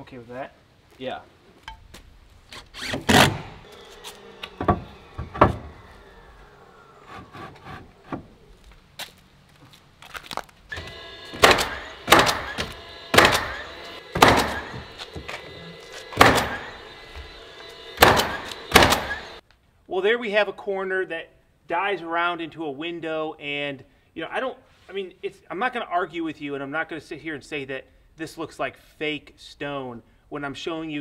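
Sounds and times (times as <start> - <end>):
nail gun shots: 2.8 - 3.6, 10.7 - 14.8, 16.1 - 16.7, 18.0 - 19.3.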